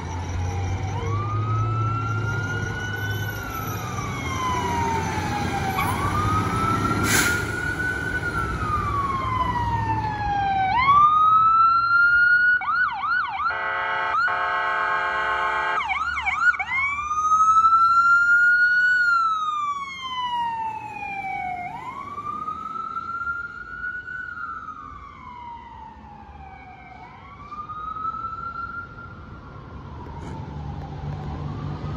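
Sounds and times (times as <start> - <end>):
electronic sirens wailing: 0.0 - 31.9
blaring electronic horn tone: 13.4 - 15.9.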